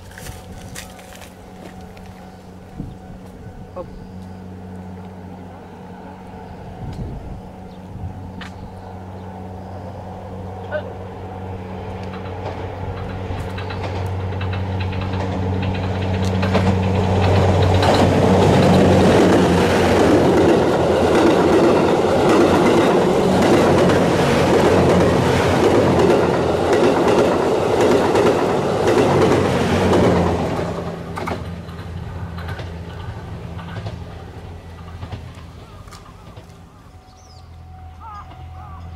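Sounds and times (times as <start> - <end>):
train engine hum: 0.0 - 38.9
train wheels clattering on rails: 11.5 - 37.3.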